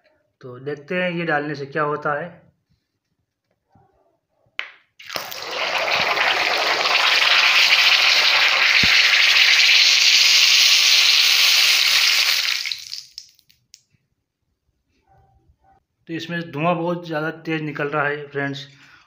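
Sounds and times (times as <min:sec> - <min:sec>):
hot oil sizzling: 0:05.0 - 0:13.4.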